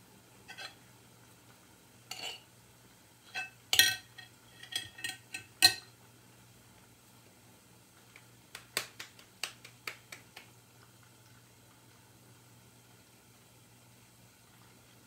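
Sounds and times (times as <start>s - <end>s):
metal spoon clinking on glass bowl: 2.1s - 2.4s, 3.3s - 5.9s.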